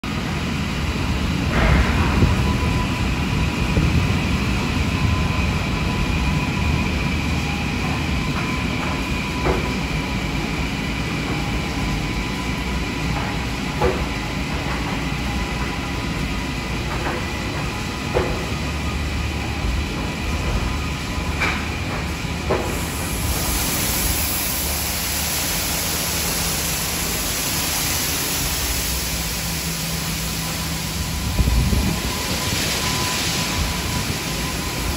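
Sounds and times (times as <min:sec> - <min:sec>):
low mechanical rumble: 0:18.6 - 0:34.1
hiss: 0:22.5 - 0:34.9.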